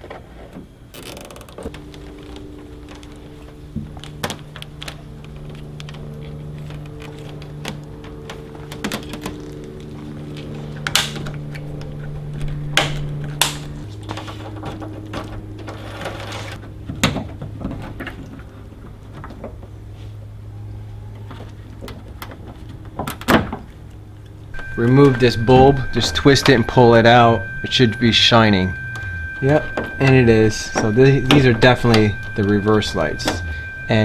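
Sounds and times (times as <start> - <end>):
steady low hum: 0.0 - 34.0
cable and plastic trim rattling: 1.0 - 13.6.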